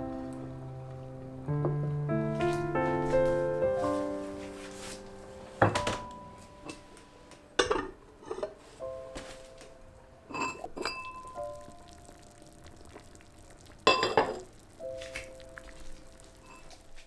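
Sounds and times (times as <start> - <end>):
soft piano music: 0.0 - 17.0
dishes knocking on wooden table: 5.6 - 6.0.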